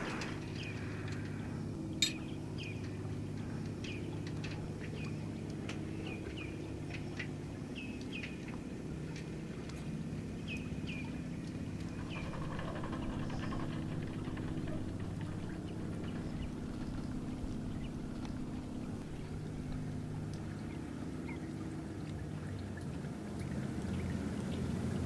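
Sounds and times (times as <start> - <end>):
boat diesel engine idling: 10.0 - 22.4.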